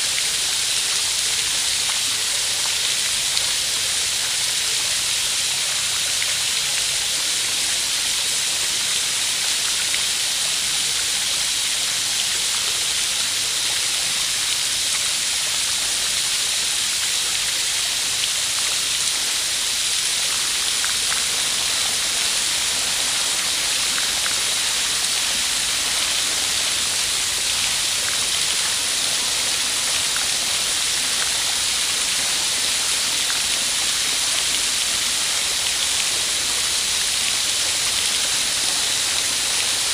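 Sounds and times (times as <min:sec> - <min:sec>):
running splashing water: 0:20.1 - 0:34.4.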